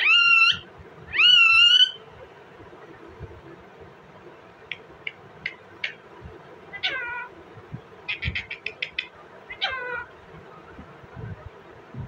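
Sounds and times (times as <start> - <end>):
parakeet calling: 0.0 - 2.0, 4.7 - 6.0, 6.7 - 7.3, 8.0 - 10.1.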